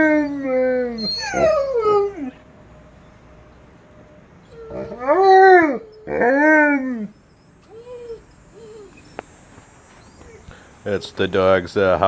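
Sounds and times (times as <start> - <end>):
dogs howling: 0.0 - 2.4, 4.4 - 11.2.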